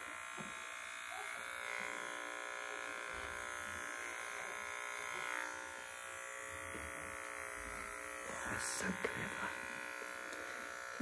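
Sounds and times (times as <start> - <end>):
electric clippers buzzing: 0.0 - 11.0.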